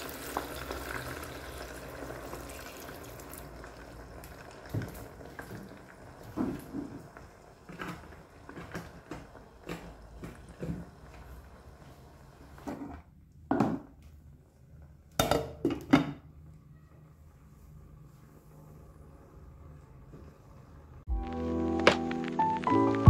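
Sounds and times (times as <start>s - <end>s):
hot oil sizzling and splashing: 0.0s - 12.6s
oil popping and bubbling: 0.0s - 13.0s.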